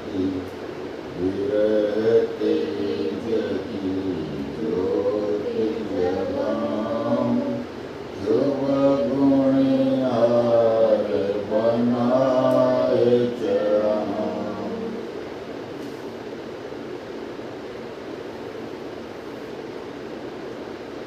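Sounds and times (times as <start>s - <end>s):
voices chanting a prayer: 0.0s - 15.2s.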